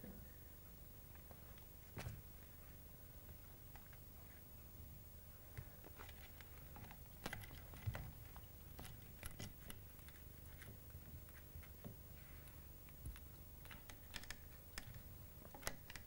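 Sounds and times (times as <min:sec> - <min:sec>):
low background hum: 0:00.0 - 0:16.0
kitten clicking and tapping: 0:12.9 - 0:16.0.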